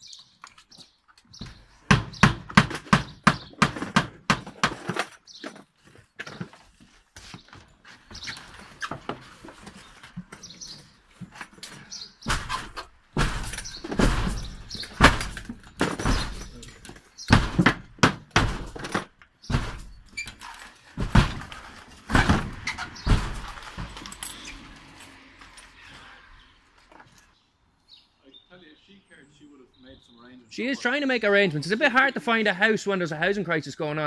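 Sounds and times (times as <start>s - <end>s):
thuds and knocks on a door: 1.4s - 4.9s, 12.2s - 16.5s, 17.3s - 20.0s, 21.0s - 21.5s, 22.1s - 24.0s.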